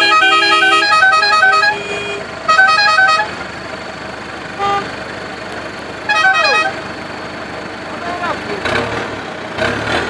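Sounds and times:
short horn toot: 0.0 - 3.3
musical vehicle horn tune: 0.0 - 3.4, 4.5 - 4.9, 6.0 - 6.9.

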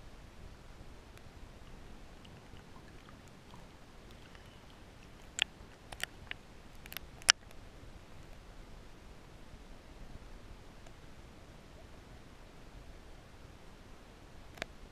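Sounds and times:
faint underwater hiss: 0.1 - 14.9
small ticks: 1.2 - 7.6, 14.5 - 14.8
sharp clicks: 3.3 - 7.6.

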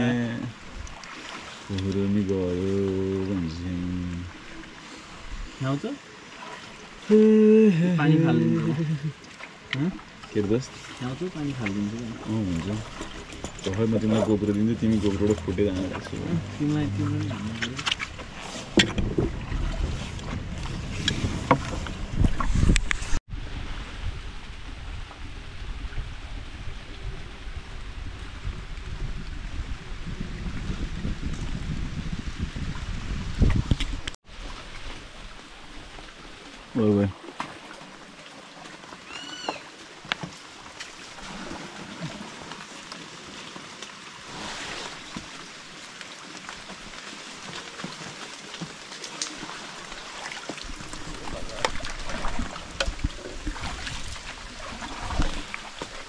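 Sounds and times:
water lapping around boat: 0.0 - 56.0
wind noise on microphone: 17.8 - 34.8, 50.7 - 55.6.

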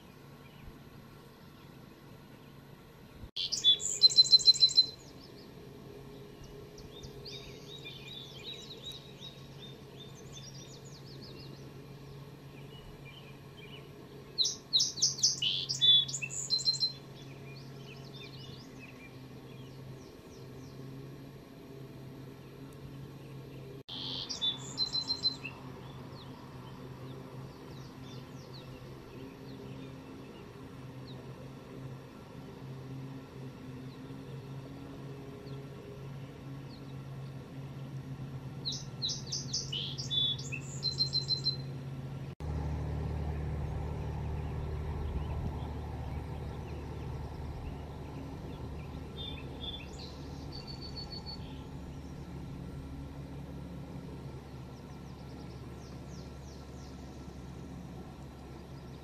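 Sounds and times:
songbird singing with trill: 3.4 - 20.9, 22.4 - 31.3, 38.6 - 41.7, 43.4 - 53.5, 54.4 - 59.0
steady low rumble: 42.3 - 53.0.

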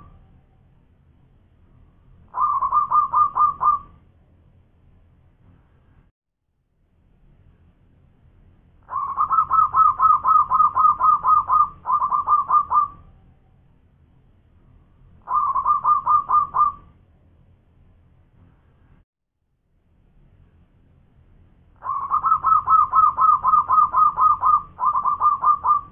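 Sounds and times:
dove cooing: 2.3 - 4.0, 8.9 - 13.0, 15.2 - 16.9, 21.8 - 25.9.

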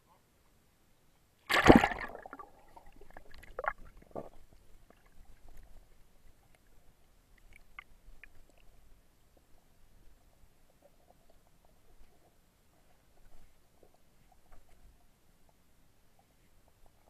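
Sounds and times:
water splash: 1.5 - 3.9
gurgling bubbles: 1.5 - 4.4
low underwater hush: 1.5 - 6.2
faint underwater clicks: 1.5 - 17.0.

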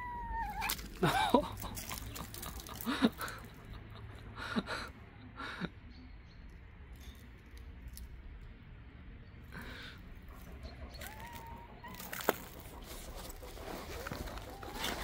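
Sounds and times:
cat calling softly: 0.0 - 0.9, 11.0 - 12.2.

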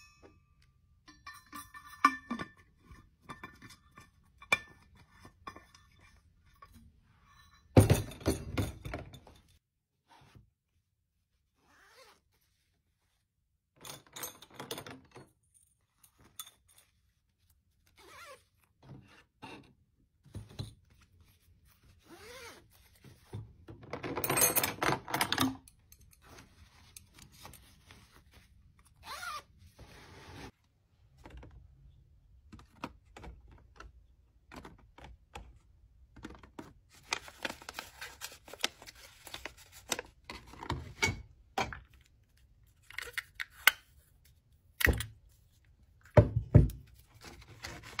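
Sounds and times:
zipper being pulled: 11.6 - 12.4, 22.0 - 22.7, 29.0 - 30.5.

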